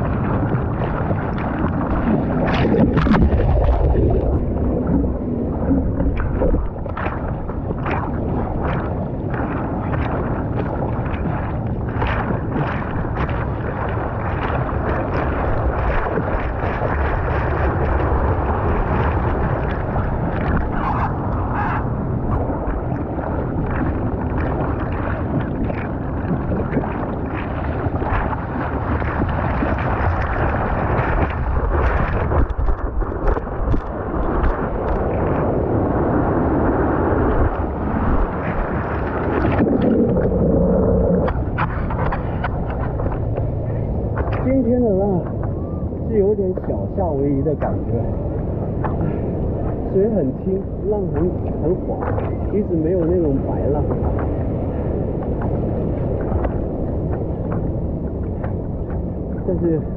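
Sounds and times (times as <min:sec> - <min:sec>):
water splashing against surfboard: 0:00.0 - 0:59.9
wind rumbling on microphone: 0:00.0 - 0:59.9.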